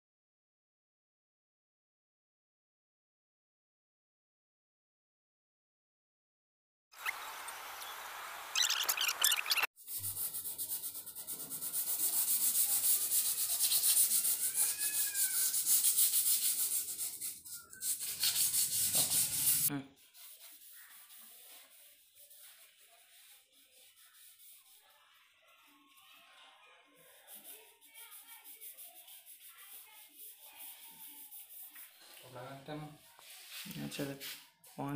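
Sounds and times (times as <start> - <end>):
hand sanding metal: 9.8 - 25.0, 27.1 - 31.9
cloth wiping: 10.0 - 25.0, 33.0 - 34.5.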